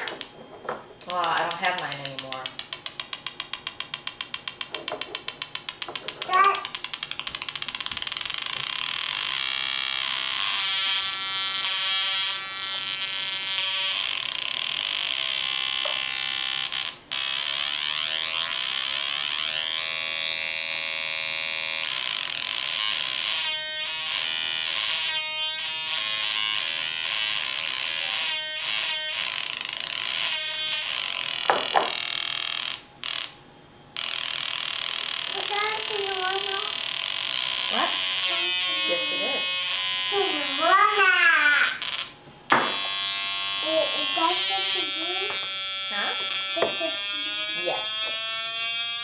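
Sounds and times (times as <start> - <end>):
harsh electronic synth buzz: 5.7 - 33.4, 34.0 - 49.0.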